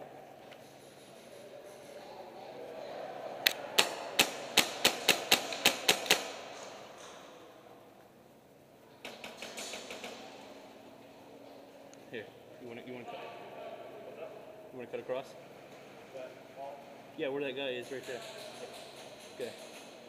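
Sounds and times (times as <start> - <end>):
airsoft rifle shots: 3.5 - 6.8.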